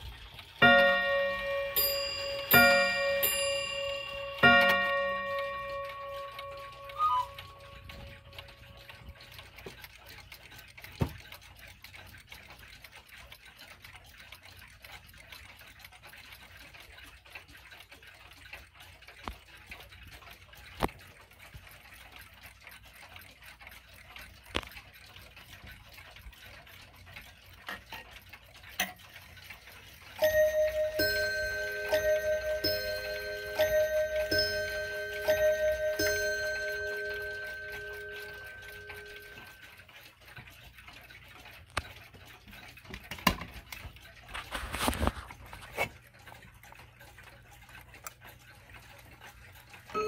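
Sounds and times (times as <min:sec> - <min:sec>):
pendulum clocks ticking: 0:00.0 - 0:50.0
wall clock chiming: 0:00.4 - 0:10.4, 0:29.0 - 0:40.2, 0:47.8 - 0:50.0.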